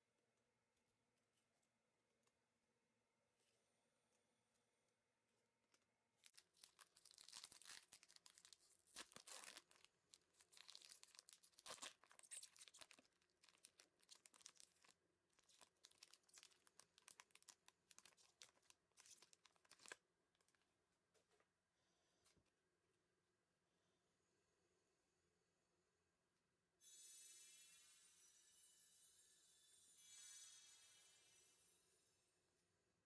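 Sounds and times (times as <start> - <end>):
foil pack tearing and crinkling: 6.2 - 20.0.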